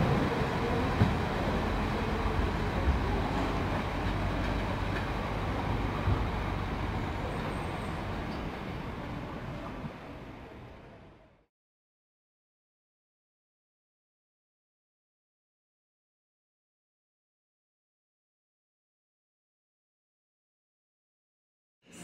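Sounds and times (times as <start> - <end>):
train wheel clacks: 0.0 - 8.6
train rumbling over tracks: 0.0 - 11.4.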